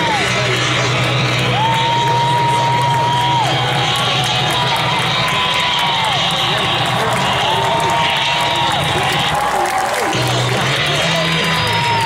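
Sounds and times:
stadium crowd cheering: 0:00.0 - 0:12.0.

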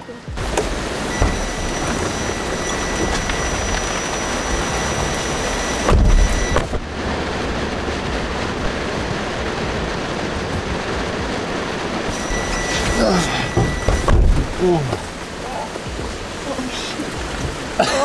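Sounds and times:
heavy rain on vehicle: 0:00.0 - 0:18.0
door shutting with thump: 0:05.8 - 0:06.8, 0:12.7 - 0:14.6
faint high tone: 0:12.1 - 0:14.9.

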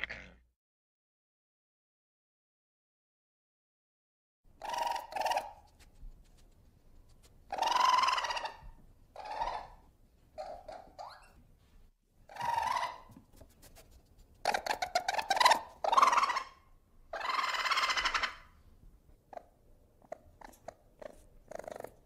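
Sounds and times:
ferret squeaky cries: 0:04.6 - 0:05.6, 0:07.5 - 0:09.8, 0:10.4 - 0:11.4, 0:12.3 - 0:13.1, 0:14.5 - 0:18.5
ferret clucking chatter: 0:04.6 - 0:05.7, 0:07.5 - 0:09.8, 0:14.4 - 0:18.5, 0:19.3 - 0:22.0.

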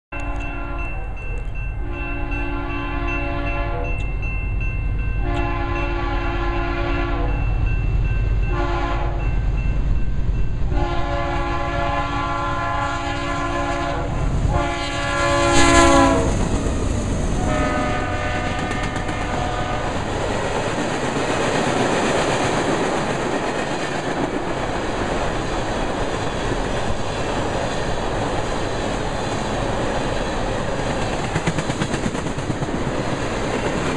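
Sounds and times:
locomotive horn: 0:00.2 - 0:01.2, 0:01.8 - 0:04.0, 0:05.2 - 0:07.4, 0:08.5 - 0:09.3, 0:10.7 - 0:16.4, 0:17.4 - 0:20.1
train wheels clacking on rails: 0:16.0 - 0:33.9.

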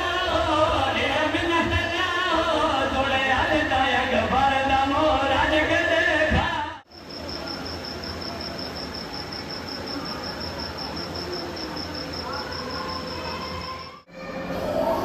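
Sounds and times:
cricket chirping: 0:06.9 - 0:14.0.

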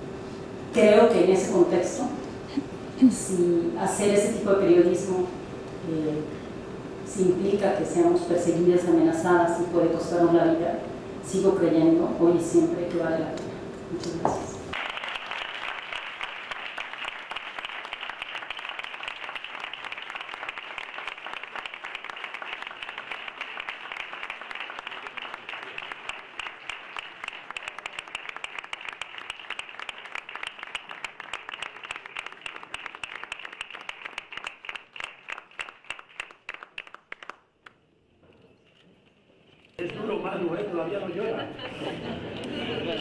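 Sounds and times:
audience applauding: 0:14.7 - 0:37.5.

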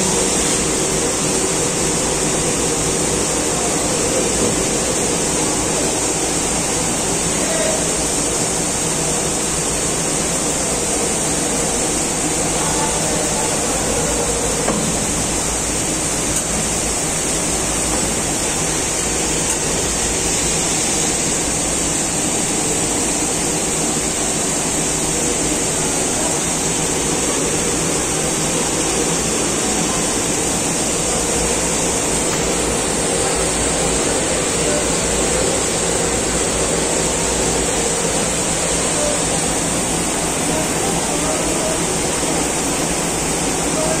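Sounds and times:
machinery whirring hiss: 0:00.0 - 0:44.0.

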